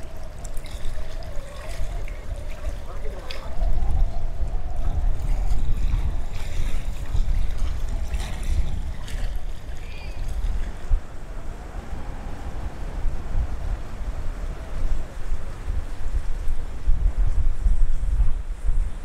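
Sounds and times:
beach surf: 0.0s - 19.0s
wind buffeting microphone: 0.0s - 19.0s
people's voices: 1.2s - 10.4s.

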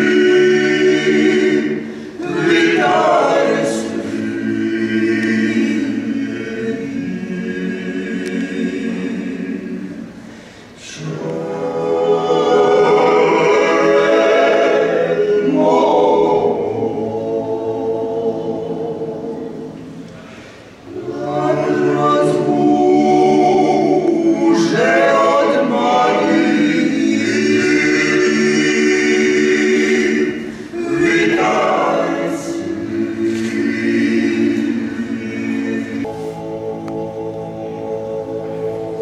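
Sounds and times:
men singing in close harmony: 0.0s - 9.7s, 20.9s - 39.0s.

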